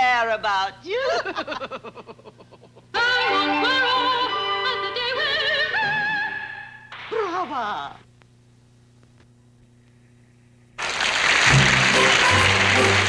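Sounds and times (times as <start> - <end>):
woman laughing: 0.9 - 3.0, 7.1 - 8.0
female operatic singing: 3.0 - 6.7.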